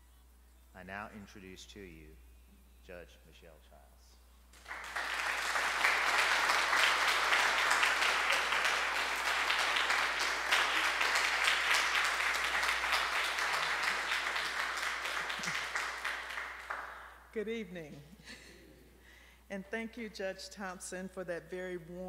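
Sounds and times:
audience applauding: 4.6 - 17.1.

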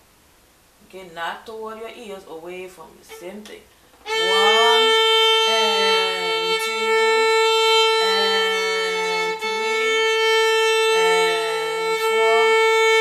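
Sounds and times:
violin sustained note: 3.1 - 13.0.

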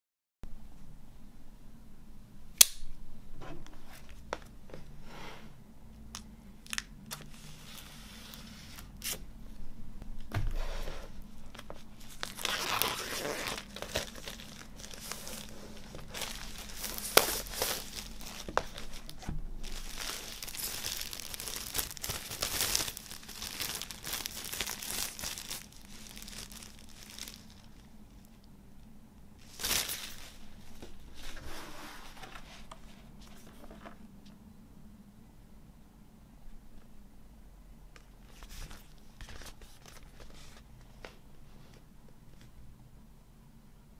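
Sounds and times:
plastic wrap crinkling and tearing: 11.5 - 28.2, 29.4 - 30.5.

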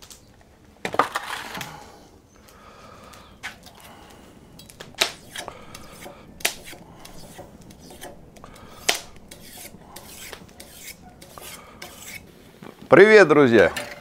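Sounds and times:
kitchen utensils scraping and clinking: 3.4 - 12.7, 13.6 - 14.0.

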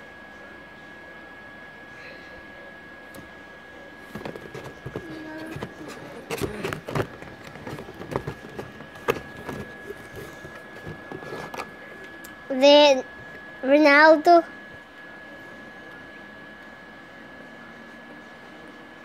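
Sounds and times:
plastic packs clacking and rustling: 4.1 - 11.7.

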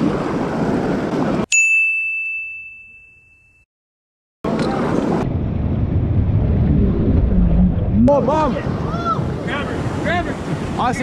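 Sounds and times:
bright bell ding: 1.5 - 3.7
wind on microphone: 4.5 - 11.0.

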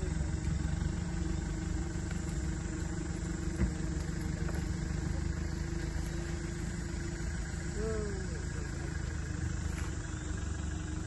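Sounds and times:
small engine idling: 0.0 - 11.0.

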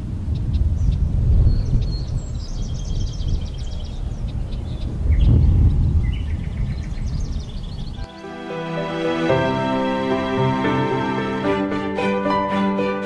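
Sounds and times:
songbirds chirping: 0.2 - 11.4.

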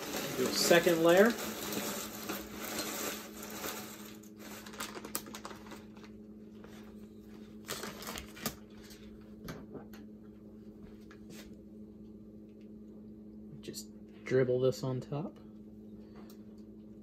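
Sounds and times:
chips poured onto a plate: 0.0 - 5.8
plastic bags crinkling: 0.0 - 6.2, 7.6 - 8.9.

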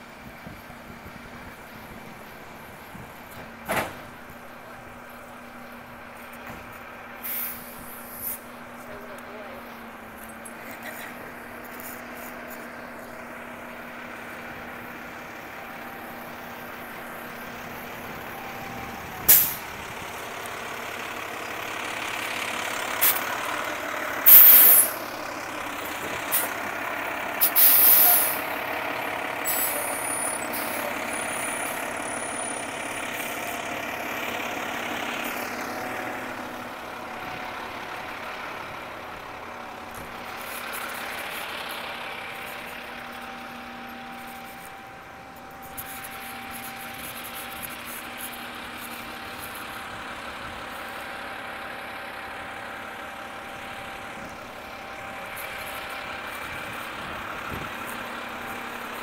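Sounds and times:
truck engine running: 0.0 - 59.0
air brake hisses: 7.2 - 8.5, 19.3 - 19.6, 24.3 - 25.0, 27.4 - 28.4.

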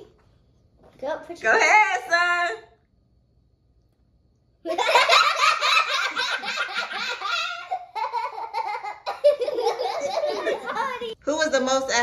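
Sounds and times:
children laughing: 4.6 - 11.2.

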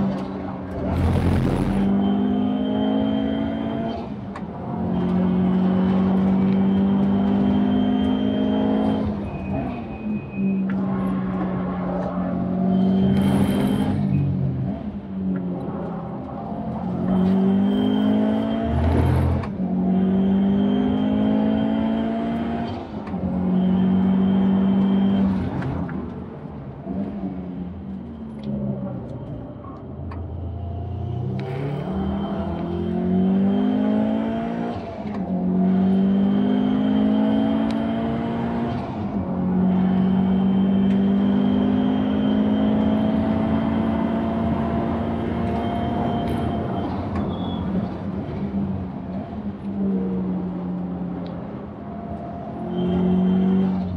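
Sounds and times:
turbocharged car engine accelerating: 0.0 - 9.8, 10.8 - 25.8, 31.0 - 46.9.

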